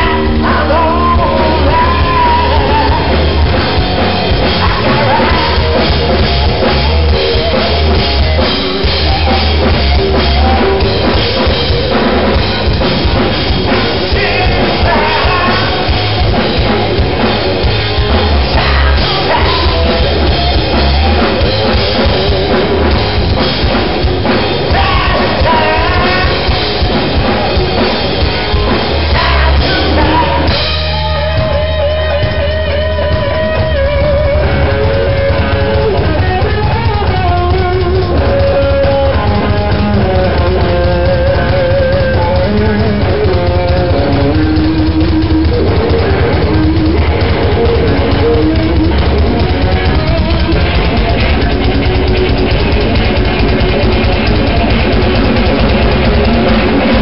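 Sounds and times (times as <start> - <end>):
person singing: 0.0 - 3.6, 4.4 - 6.1, 13.9 - 16.3, 18.3 - 21.8, 24.6 - 27.3, 28.2 - 36.5
bass: 0.0 - 57.0
drum kit: 0.0 - 57.0
electric guitar: 0.0 - 57.0
wavering guitar line: 0.0 - 57.0.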